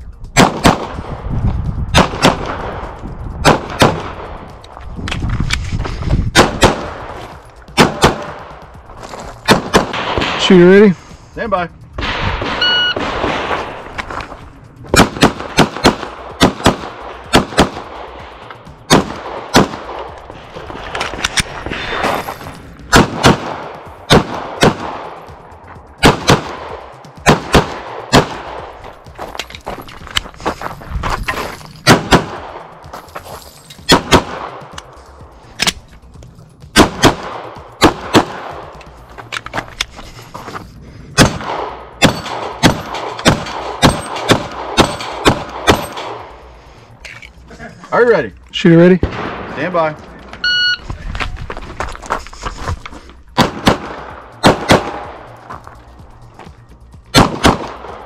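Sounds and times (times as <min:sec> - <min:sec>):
pistol shots: 0:00.4 - 0:01.1, 0:01.9 - 0:02.8, 0:03.4 - 0:04.3, 0:06.3 - 0:07.1, 0:07.7 - 0:08.6, 0:09.4 - 0:10.5, 0:14.9 - 0:18.2, 0:18.9 - 0:20.1, 0:22.9 - 0:25.2, 0:26.0 - 0:28.7, 0:31.8 - 0:32.7, 0:33.9 - 0:34.7, 0:36.7 - 0:38.7, 0:41.2 - 0:46.3, 0:53.4 - 0:55.3, 0:57.1 - 0:58.0
shot timer beep: 0:12.6 - 0:13.0, 0:50.4 - 0:50.8.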